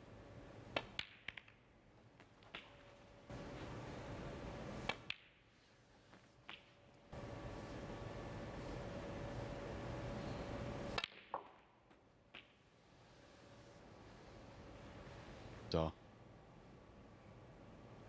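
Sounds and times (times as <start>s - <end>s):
snooker balls clicking: 0.7s - 3.0s.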